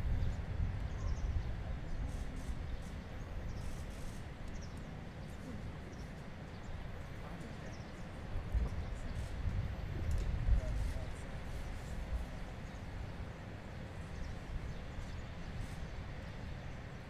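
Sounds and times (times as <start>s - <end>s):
wind rumble on microphone: 0.0s - 17.0s
faint indistinct voices: 0.8s - 12.9s.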